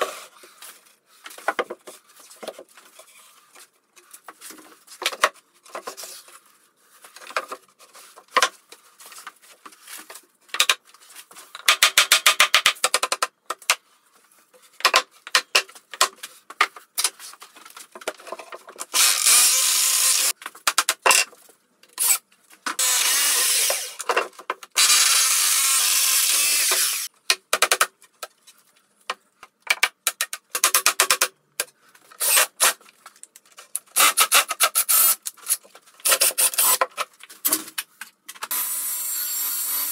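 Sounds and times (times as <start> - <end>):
power drill running: 19.0 - 20.3, 22.8 - 24.0, 24.8 - 27.1, 38.5 - 39.9.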